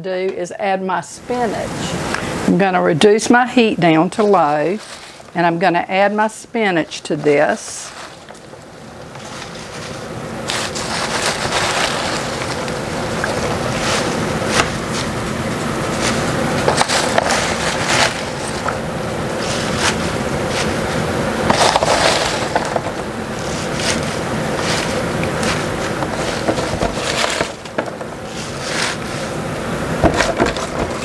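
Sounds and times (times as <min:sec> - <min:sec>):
spinach leaves rustling: 0:01.4 - 0:31.0
plastic container crinkling: 0:07.3 - 0:20.8, 0:21.4 - 0:29.4.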